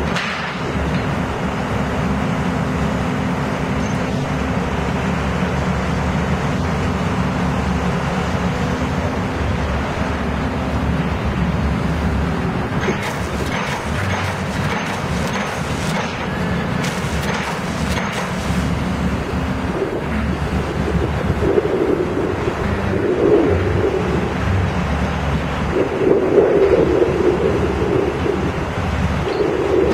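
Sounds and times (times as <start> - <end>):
piling rig engine drone: 0.0 - 29.9
rapid clatter of knocks: 12.8 - 18.5.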